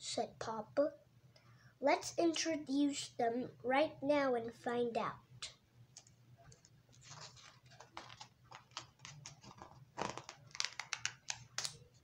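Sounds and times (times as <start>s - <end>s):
book page turning: 6.5s - 12.0s.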